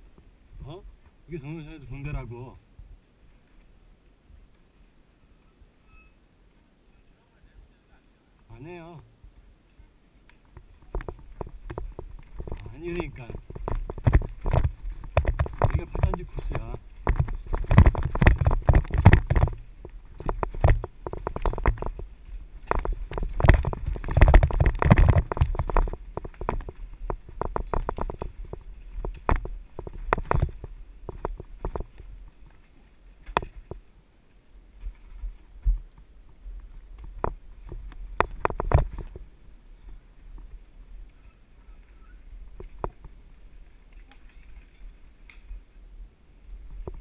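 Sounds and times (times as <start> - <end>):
mountain bike rattling on dirt trail: 10.4 - 34.0, 34.7 - 40.9, 42.0 - 45.7.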